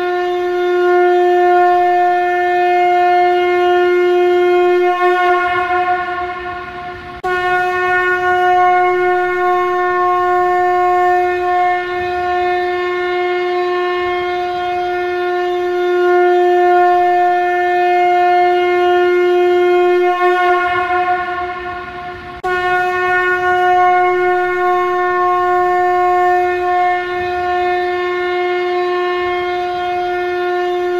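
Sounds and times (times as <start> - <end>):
conch shell blown: 0.0 - 30.9.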